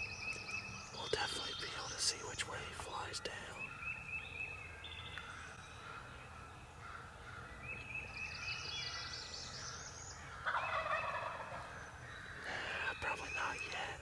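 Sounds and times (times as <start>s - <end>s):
songbirds trilling: 0.0s - 14.0s
turkey gobbling: 10.4s - 11.7s.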